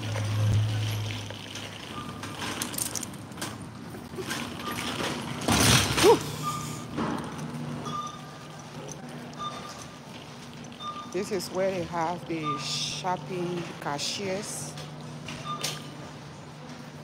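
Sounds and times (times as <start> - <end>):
shopping cart rattling: 0.0 - 6.4.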